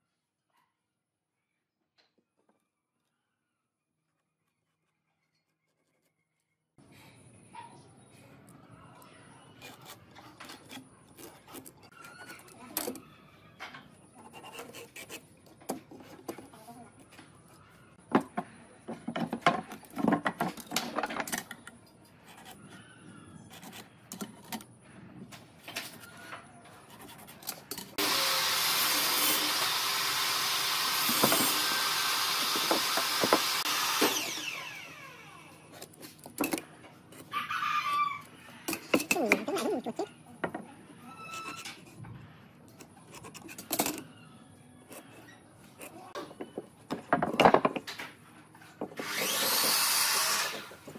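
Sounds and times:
power tool running: 28.0s - 35.7s, 49.0s - 50.9s.

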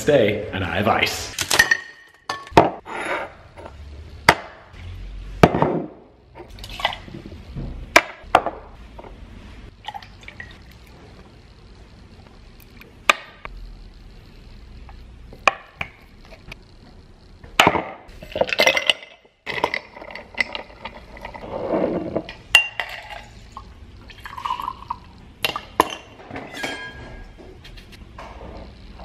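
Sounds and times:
liquid pouring: 9.8s - 10.9s, 22.9s - 25.9s.

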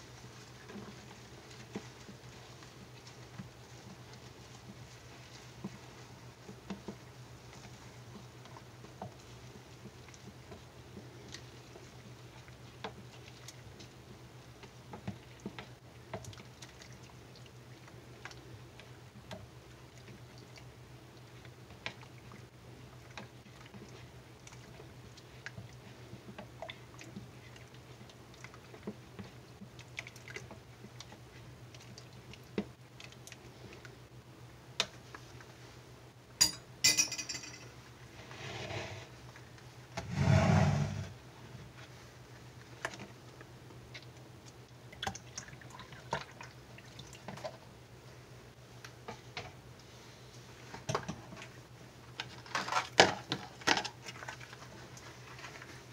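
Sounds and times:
objects clattering on counter: 36.4s - 37.7s.

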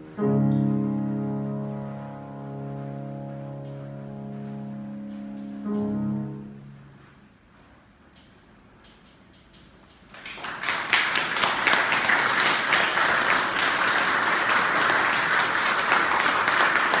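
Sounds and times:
audience applause: 10.1s - 17.0s.

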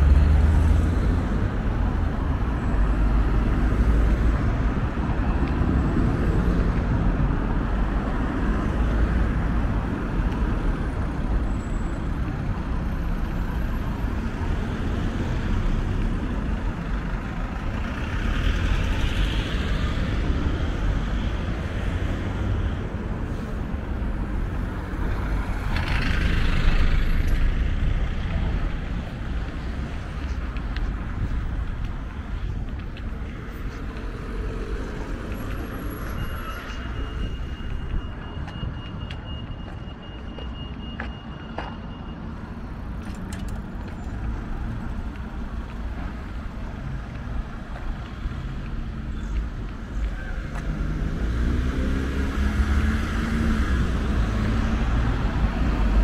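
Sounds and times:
cars driving past: 0.0s - 56.0s
low traffic rumble: 0.0s - 56.0s.

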